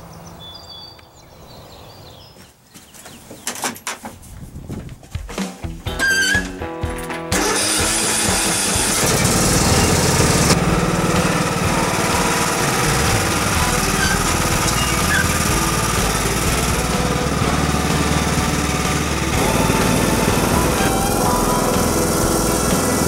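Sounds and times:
engine cranking on starter: 0:05.9 - 0:23.0
lawn tractor engine running: 0:05.9 - 0:23.0.

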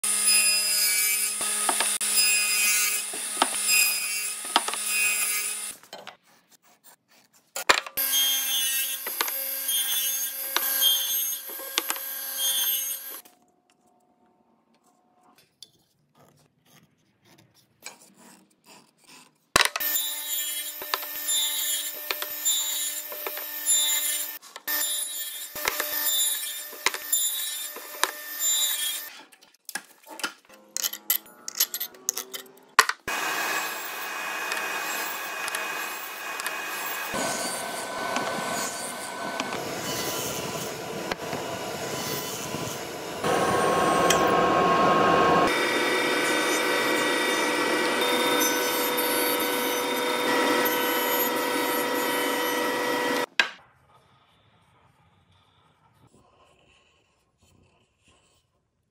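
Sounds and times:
radial arm saw cutting wood: 0:00.0 - 0:05.8, 0:08.0 - 0:13.2, 0:32.0 - 0:53.3.

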